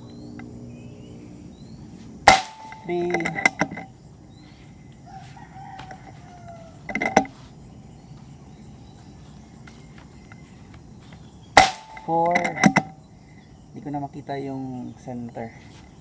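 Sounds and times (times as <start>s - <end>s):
air rifle shot: 2.2s - 2.9s, 11.6s - 12.1s
roosters crowing: 2.2s - 10.9s.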